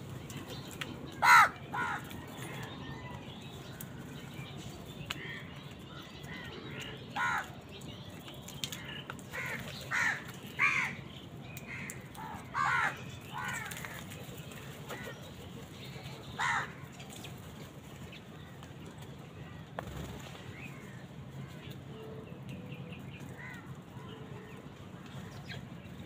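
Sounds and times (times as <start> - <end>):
crows cawing: 1.2 - 2.2, 6.3 - 7.5, 9.3 - 11.0, 11.7 - 14.0, 16.4 - 16.8, 23.4 - 23.6.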